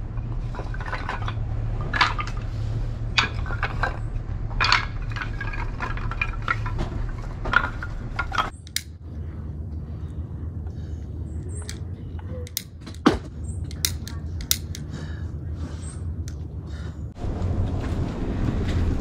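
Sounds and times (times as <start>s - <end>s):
steady low rumble: 0.0s - 19.0s
kindling wood clattering: 0.4s - 8.8s.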